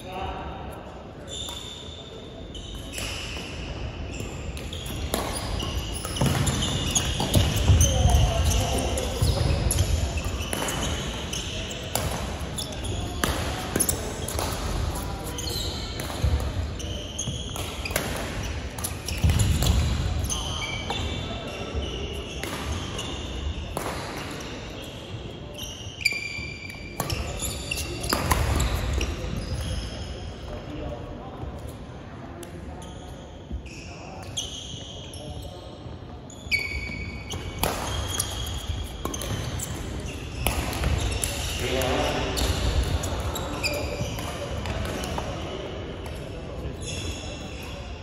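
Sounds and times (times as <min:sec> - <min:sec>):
shoes squeaking on floor: 0:01.2 - 0:23.7, 0:24.4 - 0:30.4, 0:32.8 - 0:45.6, 0:46.6 - 0:48.0
racket hitting shuttlecock: 0:04.6 - 0:11.2, 0:11.9 - 0:15.0, 0:23.8 - 0:24.4, 0:28.0 - 0:28.8, 0:37.3 - 0:41.7.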